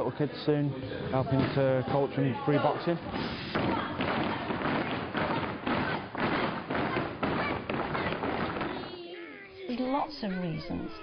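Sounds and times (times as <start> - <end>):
gym hubbub: 0.0 - 11.0
thuds on padded floor: 3.5 - 9.0.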